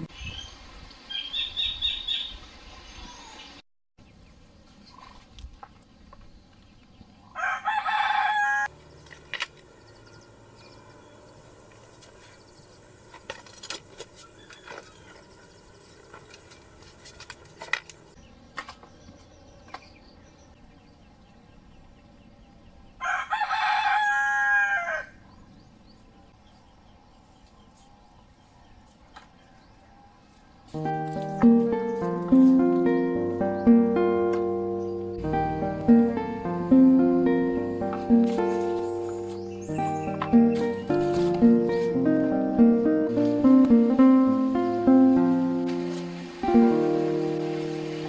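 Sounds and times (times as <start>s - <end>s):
rooster crowing: 7.3s - 8.7s, 23.0s - 25.2s.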